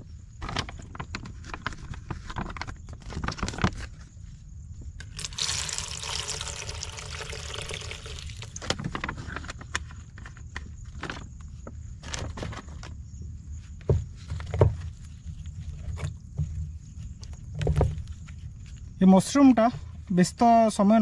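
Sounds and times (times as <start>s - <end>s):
water pouring: 5.1s - 8.7s.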